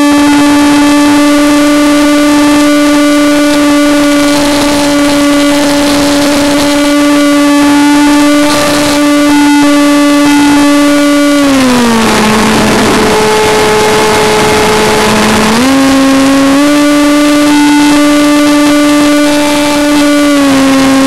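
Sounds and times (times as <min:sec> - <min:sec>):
electric motor and propeller whining: 0:00.0 - 0:21.0.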